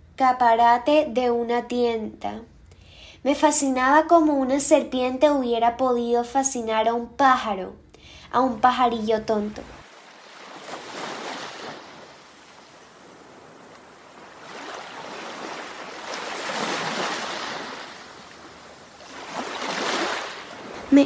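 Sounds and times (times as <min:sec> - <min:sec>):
surf hissing: 0:09.6 - 0:21.0.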